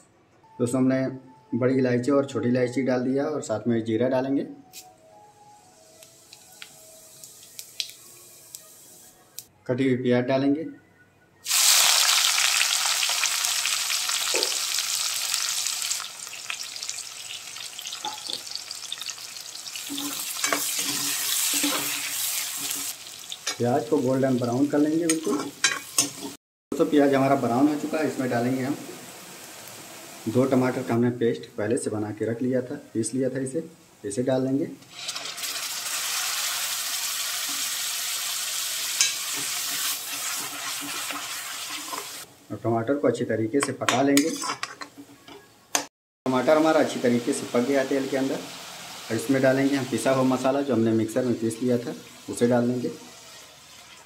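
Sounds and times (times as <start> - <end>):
onions sizzling in hot oil: 5.8 - 9.1, 11.4 - 31.0, 34.9 - 42.3, 46.3 - 54.0
metal spatula scraping pan: 19.8 - 22.9, 44.2 - 44.8.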